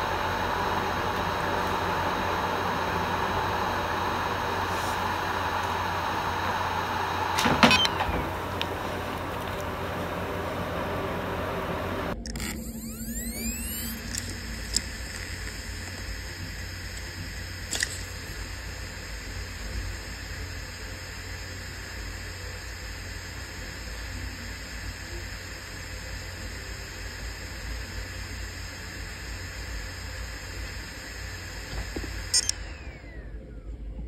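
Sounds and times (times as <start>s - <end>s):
amplified hiss: 0.0s - 33.4s
hard drive spinning hum: 0.0s - 34.0s
sharp clicks: 32.1s - 33.1s.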